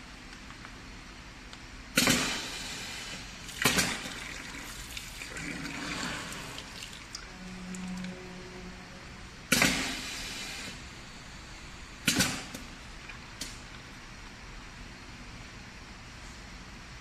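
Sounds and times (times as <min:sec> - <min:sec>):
compressed air hissing: 0:02.0 - 0:03.5, 0:09.5 - 0:11.3.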